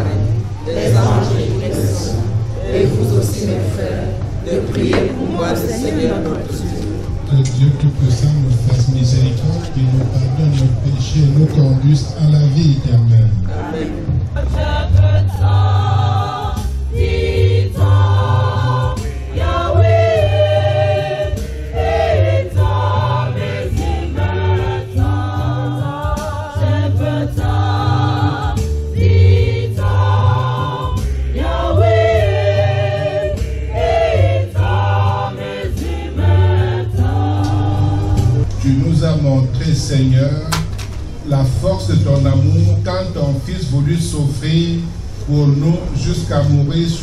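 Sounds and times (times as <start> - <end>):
choir of women singing a hymn: 0.0 - 6.5, 13.5 - 38.7
deep pulsing bass beat: 7.1 - 46.6.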